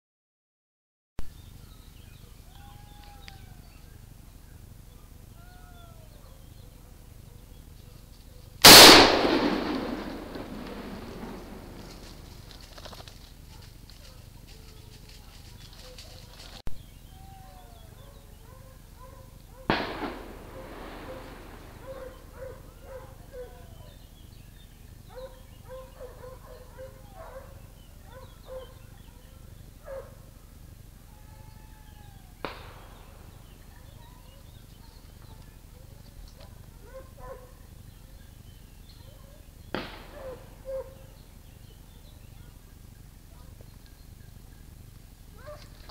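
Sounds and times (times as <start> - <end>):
gunshot with echo: 8.6 - 12.4, 19.7 - 22.7, 32.4 - 33.6, 39.8 - 40.5
dogs yelping faintly: 20.4 - 24.0.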